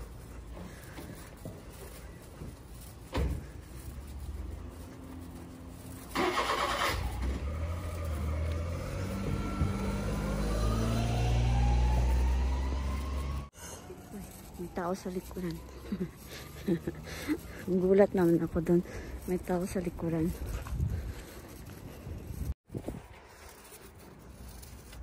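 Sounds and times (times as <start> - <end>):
car engine starting and revving: 5.8 - 13.5.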